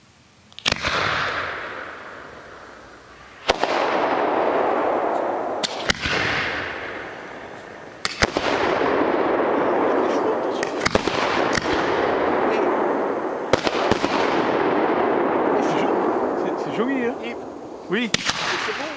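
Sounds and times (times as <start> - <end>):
firework bangs: 0.6 - 18.9
rushing noise after bursts: 0.6 - 18.9.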